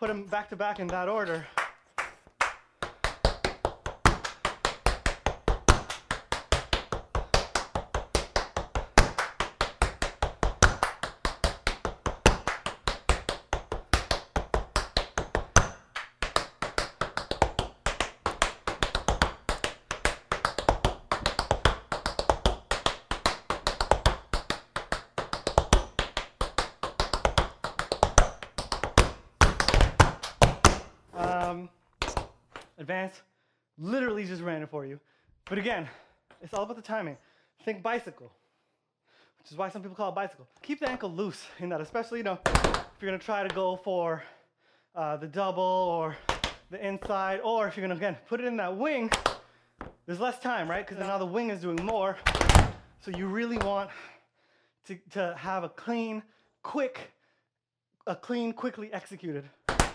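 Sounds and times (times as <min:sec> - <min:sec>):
tap shoes on wooden floor: 0:02.8 - 0:32.7, 0:42.4 - 0:43.0, 0:51.8 - 0:53.8.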